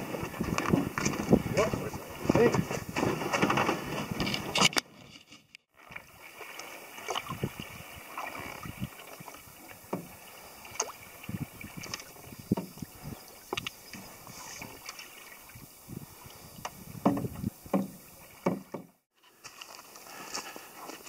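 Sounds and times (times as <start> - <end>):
wind: 0.0 - 21.0
paddle splashing in water: 5.7 - 19.1
small knocks: 16.6 - 19.0.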